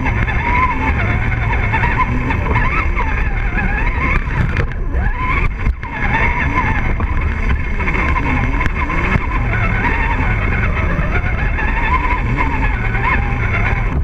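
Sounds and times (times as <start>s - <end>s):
rc car motor whining: 0.0s - 14.0s
steady low rumble: 0.0s - 14.0s.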